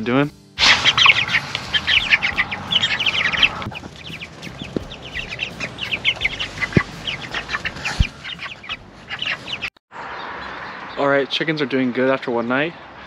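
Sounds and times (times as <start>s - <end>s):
chickens peeping and clucking: 0.6s - 9.8s.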